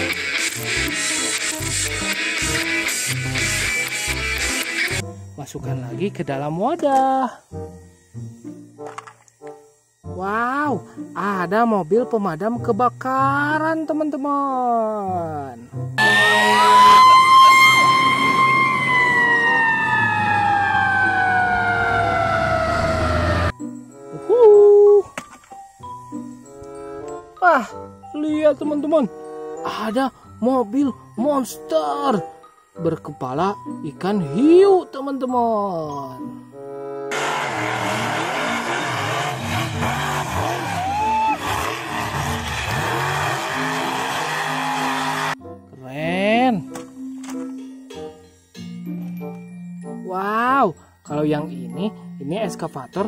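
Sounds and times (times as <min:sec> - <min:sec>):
high squeal: 0:16.0 - 0:23.5, 0:37.4 - 0:45.4
fire engine siren: 0:16.0 - 0:23.6, 0:37.1 - 0:45.4.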